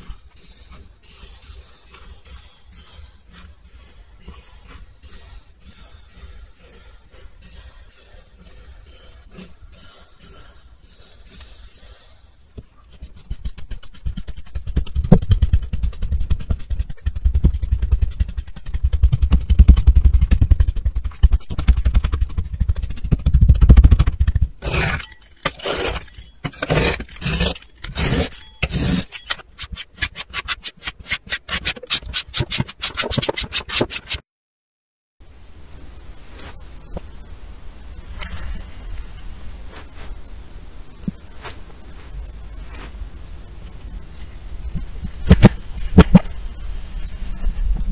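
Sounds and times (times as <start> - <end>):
fast small ticks: 13.0 - 24.6.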